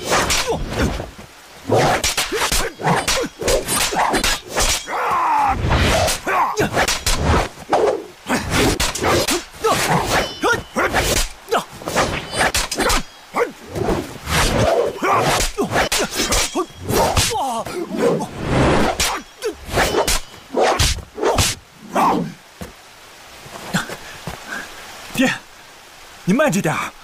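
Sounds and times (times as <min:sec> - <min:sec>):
swords whacking and clashing: 0:00.0 - 0:01.0, 0:01.8 - 0:05.1, 0:05.8 - 0:07.5, 0:08.5 - 0:13.1, 0:14.3 - 0:17.4, 0:18.8 - 0:21.6
swords swishing through air: 0:01.8 - 0:04.8, 0:05.8 - 0:13.0, 0:13.7 - 0:17.4, 0:18.0 - 0:21.6
person grunting: 0:15.0 - 0:18.3.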